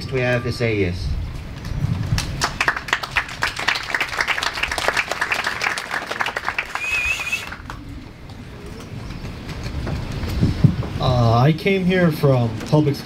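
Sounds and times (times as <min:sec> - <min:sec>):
audience applauding: 0:02.0 - 0:07.8
high wavering whistle: 0:06.7 - 0:07.6.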